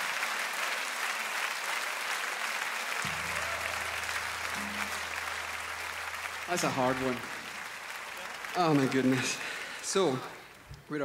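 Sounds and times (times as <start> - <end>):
audience applauding: 0.0 - 10.7
low steady tone: 3.1 - 8.4.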